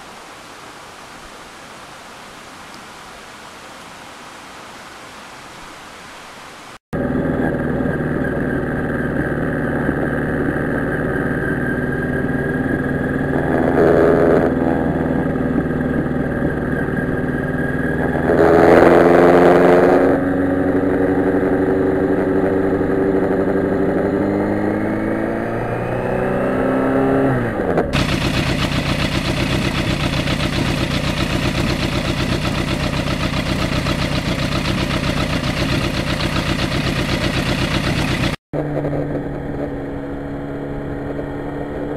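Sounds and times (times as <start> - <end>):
motorcycle engine running: 7.0 - 41.9
engine idling: 28.0 - 39.1.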